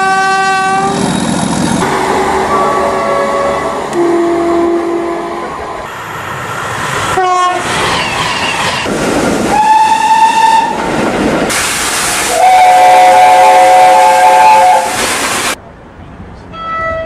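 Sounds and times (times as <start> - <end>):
train horn: 0.0 - 1.0, 1.8 - 5.5, 7.2 - 7.7, 9.5 - 10.8, 12.3 - 15.0
passing train: 0.0 - 17.0.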